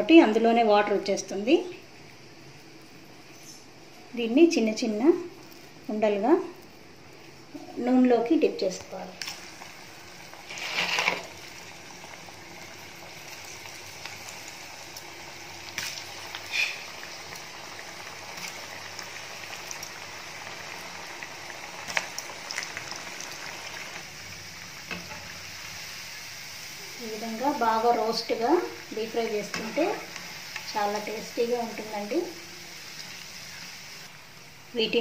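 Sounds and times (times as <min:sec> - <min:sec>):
batter sizzling in hot oil: 0:00.0 - 0:35.0
oil crackling and popping: 0:08.8 - 0:26.3, 0:27.0 - 0:34.2.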